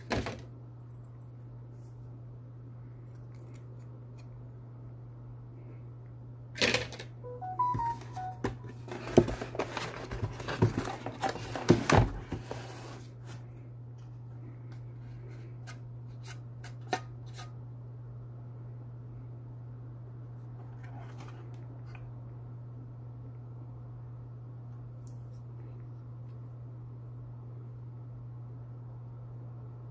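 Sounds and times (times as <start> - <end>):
steady low hum: 0.0 - 29.9
rustling cardboard packaging: 8.2 - 13.4.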